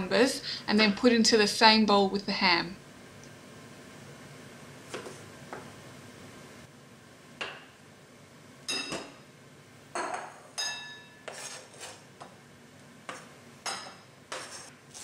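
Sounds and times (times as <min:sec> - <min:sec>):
knife clinking on board and bowl: 0:10.0 - 0:11.4, 0:13.7 - 0:14.1.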